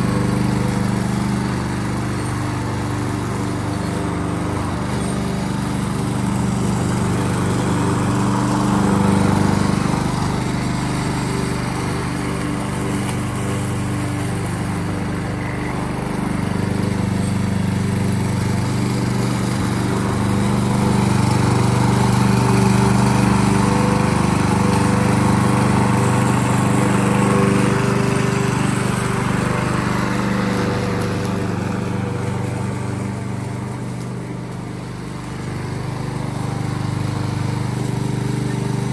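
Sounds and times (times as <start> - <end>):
lawnmower engine running: 0.0 - 38.9.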